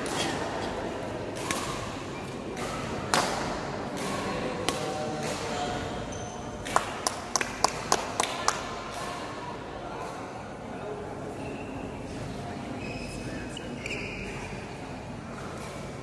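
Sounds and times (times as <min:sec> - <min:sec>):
murmur of voices: 0:00.0 - 0:16.0
rackets striking shuttlecock: 0:01.2 - 0:05.5.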